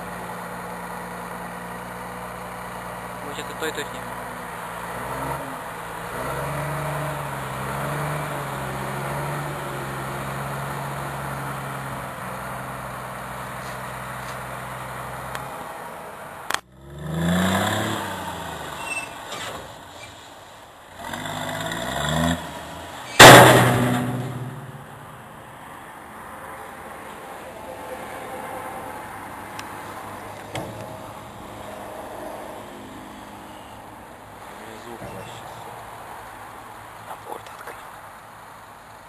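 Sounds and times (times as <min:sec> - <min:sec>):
diesel engine running: 0:00.0 - 0:25.6
truck engine revving: 0:00.0 - 0:25.6
loud sudden burst of noise: 0:23.2 - 0:25.3.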